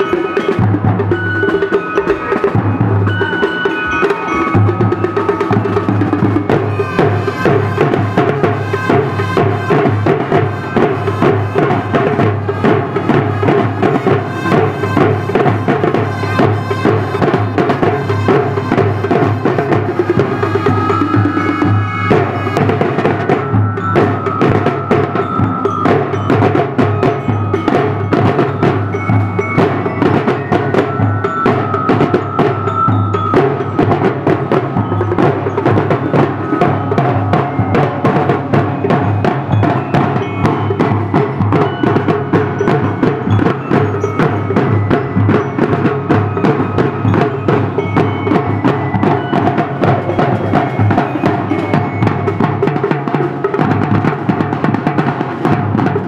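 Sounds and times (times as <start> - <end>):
snare drums: 0.0 - 56.0
tenor drums: 0.0 - 56.0
bass drums: 4.4 - 30.7.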